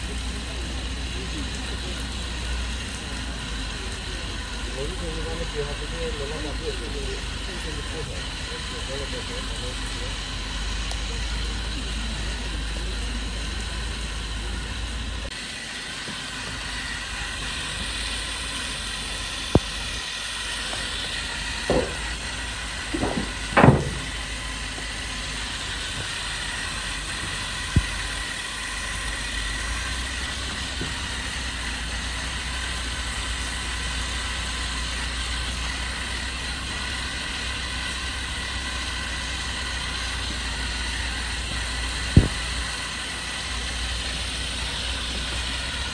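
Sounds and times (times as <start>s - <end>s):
robot brushes hissing and whirring: 0.0s - 45.9s
short knocks and squeaks: 21.6s - 24.2s.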